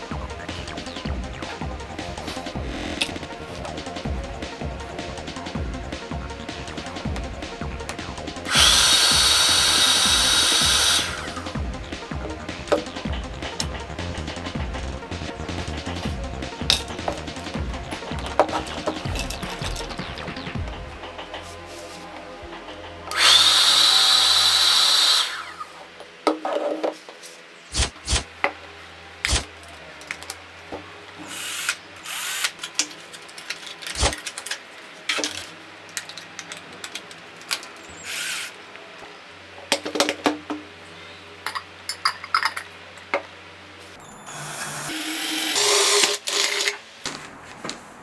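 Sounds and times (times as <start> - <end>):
small electric motor whirring: 8.5 - 11.5, 23.1 - 25.7, 44.2 - 46.7.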